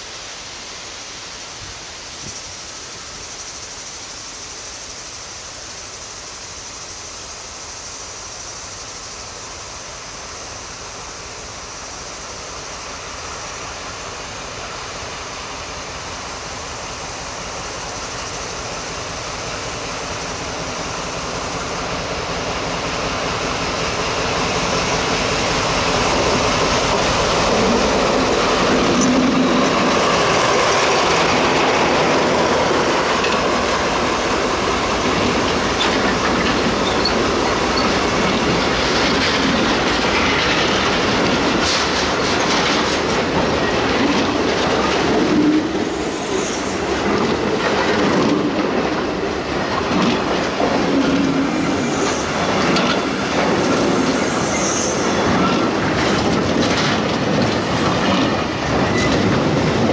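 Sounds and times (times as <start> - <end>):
locomotive passing: 17.4 - 59.9
train wheels clicking over rail joints: 17.9 - 59.9
thin wheel squeal: 36.7 - 38.0, 53.6 - 55.7.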